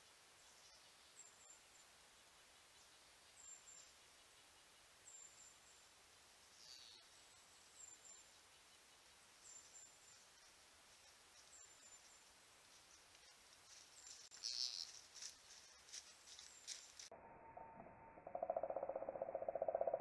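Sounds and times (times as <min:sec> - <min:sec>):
hooves crunching dry leaves: 0:12.6 - 0:17.1.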